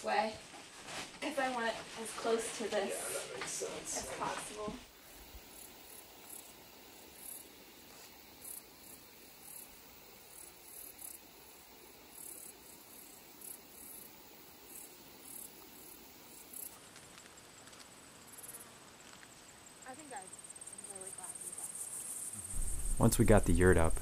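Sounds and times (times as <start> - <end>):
quiet outdoor hiss: 0.0 - 24.0
high-pitched insect chirps: 5.1 - 16.8.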